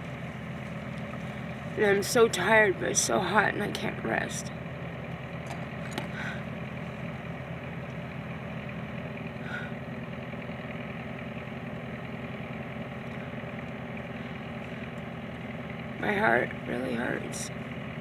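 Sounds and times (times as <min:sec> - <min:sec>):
car engine idling: 0:00.0 - 0:18.0.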